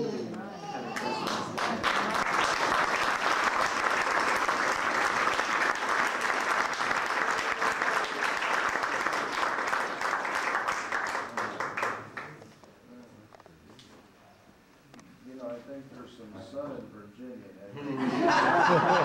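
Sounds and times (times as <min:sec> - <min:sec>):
crowd applauding: 0:00.9 - 0:12.4.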